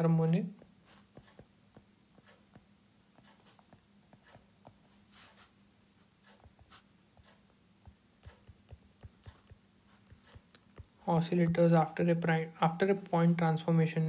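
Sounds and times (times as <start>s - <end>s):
stylus tapping on tablet screen: 0.0s - 5.4s, 6.2s - 13.4s.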